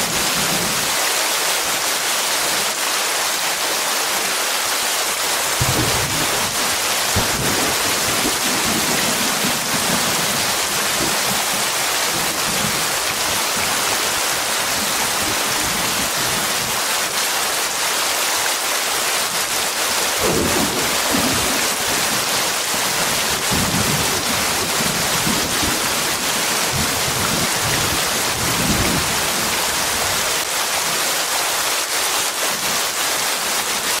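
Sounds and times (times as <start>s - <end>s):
heavy rain: 0.0s - 34.0s
thunder rumbling: 5.6s - 13.8s, 20.2s - 29.3s.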